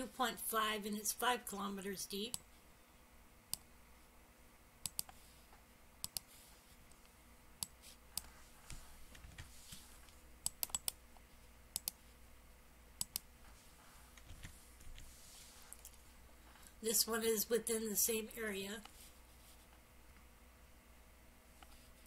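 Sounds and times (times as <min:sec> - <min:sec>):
mouse and keyboard clicks: 0:04.8 - 0:05.2, 0:06.0 - 0:06.3, 0:10.4 - 0:11.0.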